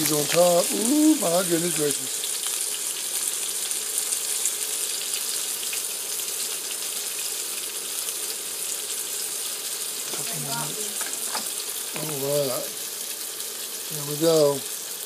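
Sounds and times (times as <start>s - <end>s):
patties sizzling in a pan: 0.0s - 15.0s.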